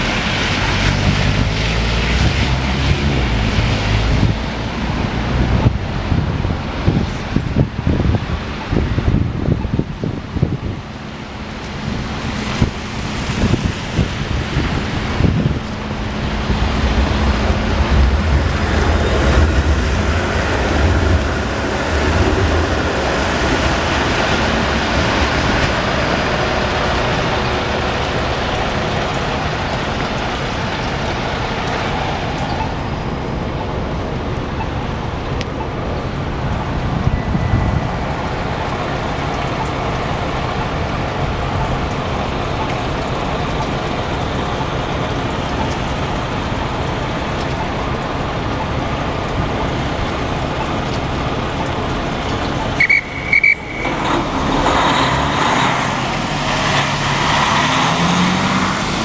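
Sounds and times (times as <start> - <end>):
street traffic: 0.0 - 59.0
heavy vehicle rumbling past: 12.2 - 34.3, 53.6 - 59.0
vehicle engine pulling away: 53.6 - 59.0.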